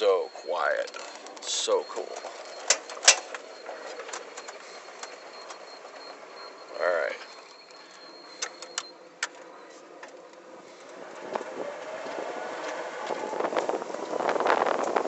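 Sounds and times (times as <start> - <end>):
road noise: 0.0 - 15.0
wind buffeting microphone: 11.2 - 15.0.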